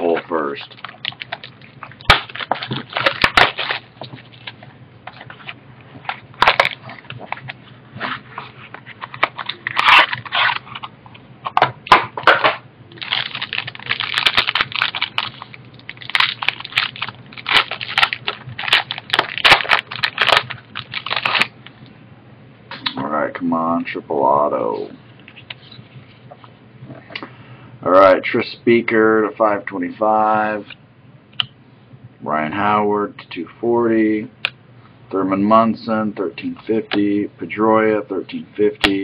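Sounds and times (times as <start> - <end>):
foil wrapper crinkling: 0.5 - 7.5, 8.8 - 10.9, 12.2 - 21.6.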